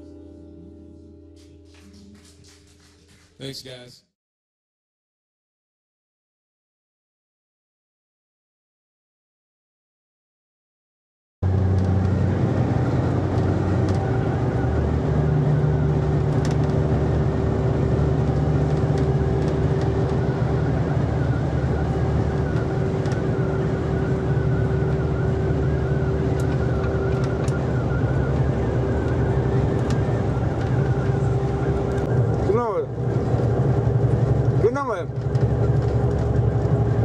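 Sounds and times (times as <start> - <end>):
road and tyre noise: 11.4 - 37.0
truck diesel engine running: 11.4 - 37.0.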